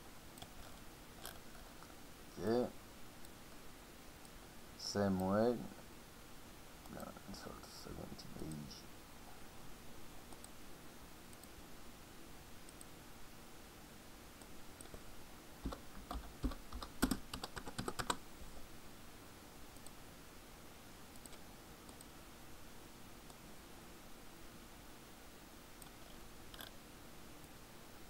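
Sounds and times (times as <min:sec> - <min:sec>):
typing on computer keyboard: 0:15.6 - 0:18.2.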